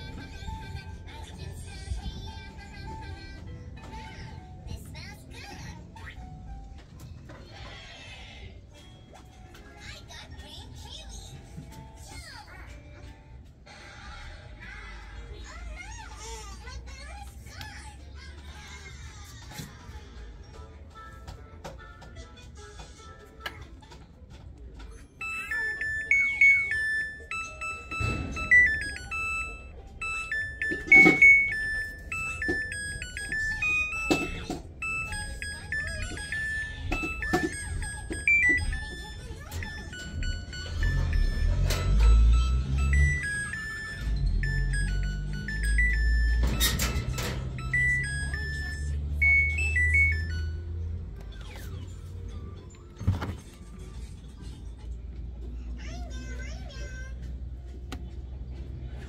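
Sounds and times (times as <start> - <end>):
washing machine electronic jingle: 24.8 - 54.2.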